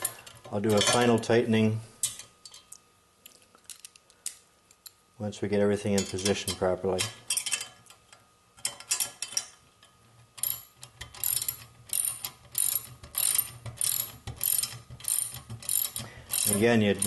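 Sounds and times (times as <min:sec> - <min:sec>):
ratchet wrench clicking: 0:10.4 - 0:17.0.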